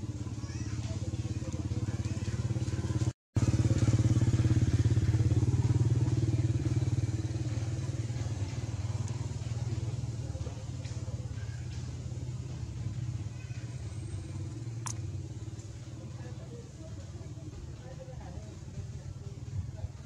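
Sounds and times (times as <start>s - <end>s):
motorcycle engine droning: 1.0s - 20.0s.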